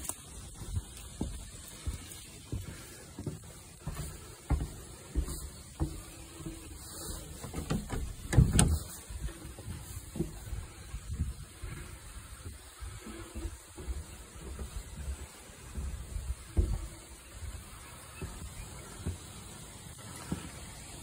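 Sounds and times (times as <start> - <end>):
footsteps on wooden boards: 0.0 - 21.0
thump: 7.5 - 8.9.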